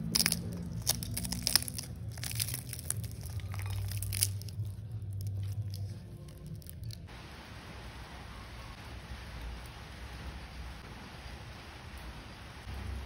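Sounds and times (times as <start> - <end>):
crepe tearing crackle: 0.0 - 7.1
low steady hum: 0.0 - 13.0.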